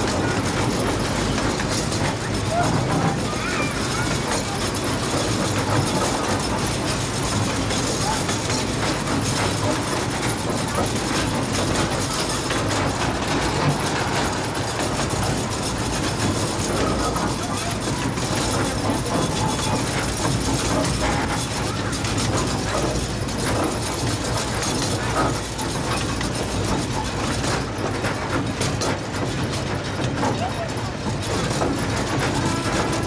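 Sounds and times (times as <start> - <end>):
train cars rumbling on rails: 0.0 - 33.0.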